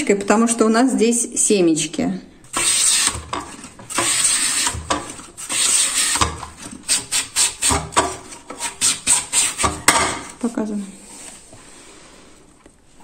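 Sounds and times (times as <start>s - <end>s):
pumpkin scraping on mandoline blade: 2.5s - 10.4s.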